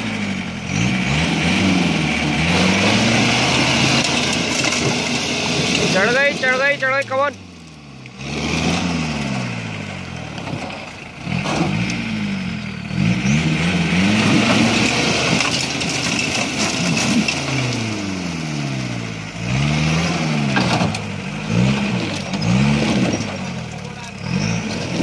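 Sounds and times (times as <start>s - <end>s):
jeep engine revving: 0.0s - 25.0s
tyres spinning spraying gravel: 2.3s - 7.5s, 13.9s - 18.4s.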